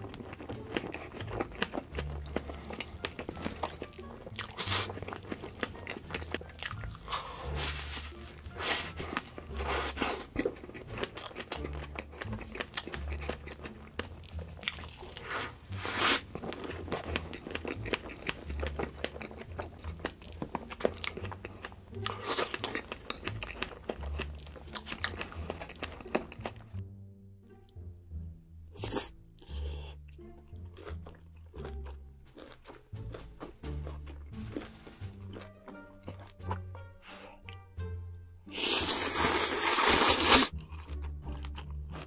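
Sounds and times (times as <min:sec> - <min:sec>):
chewing and mouth sounds: 0:00.0 - 0:26.8, 0:28.8 - 0:37.6, 0:38.5 - 0:42.0.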